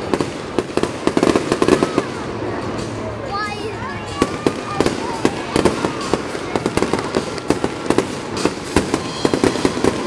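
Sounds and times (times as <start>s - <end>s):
fireworks bursting with sharp bangs: 0.0s - 3.0s, 4.0s - 10.0s
fireworks crackle: 0.0s - 3.2s, 4.0s - 10.0s.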